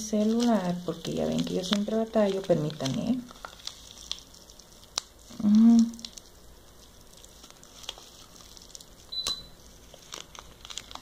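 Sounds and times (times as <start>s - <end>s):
plastic packet rustling: 0.0s - 11.0s
person humming briefly: 5.3s - 6.0s.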